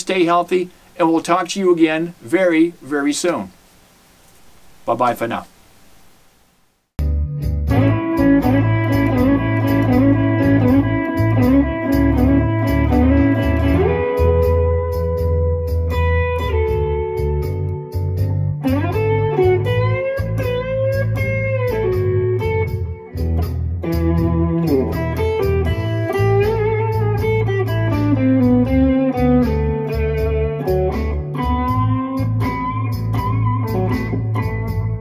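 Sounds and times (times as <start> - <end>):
backing beat: 7.0 - 35.0
bass line: 7.0 - 35.0
electric guitar blues lead: 7.6 - 35.0.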